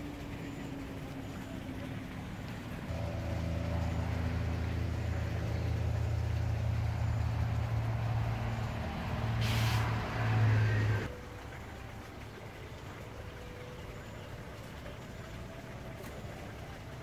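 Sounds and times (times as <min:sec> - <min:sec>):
low mechanical hum: 0:00.0 - 0:17.0
short burst of hiss: 0:09.4 - 0:10.0.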